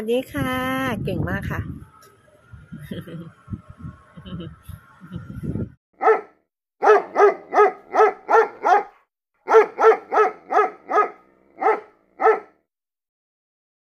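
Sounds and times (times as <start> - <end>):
dog barking: 6.0 - 12.6.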